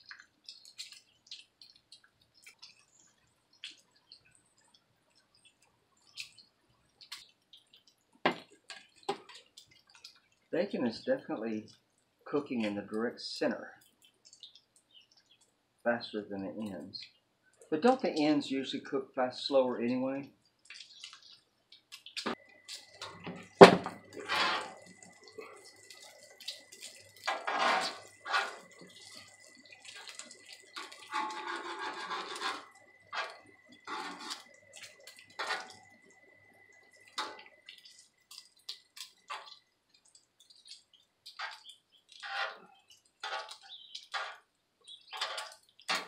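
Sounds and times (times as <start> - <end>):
bacon sizzling on a griddle: 21.7 - 46.0.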